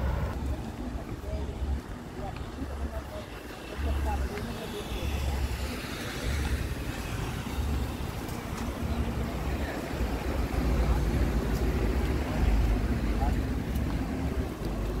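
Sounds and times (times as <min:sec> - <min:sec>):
faint voices of passers-by: 0:00.0 - 0:15.0
road traffic rumble: 0:00.0 - 0:15.0.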